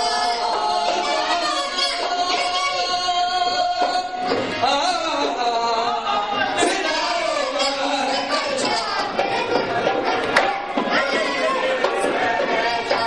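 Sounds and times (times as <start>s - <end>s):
singing over instrumental music: 0.0s - 13.0s.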